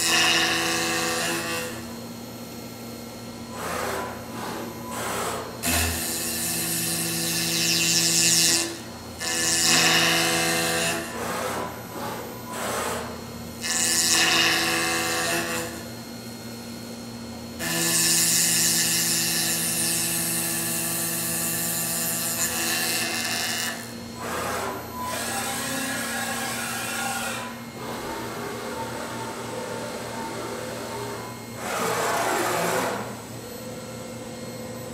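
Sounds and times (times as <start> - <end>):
high-pitched wood cutting noise: 17.6 - 33.2.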